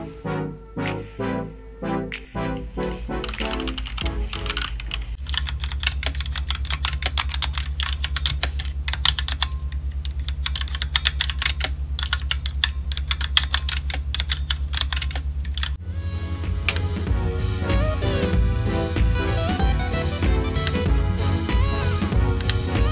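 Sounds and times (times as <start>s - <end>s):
mechanical keyboard typing: 3.2s - 15.8s.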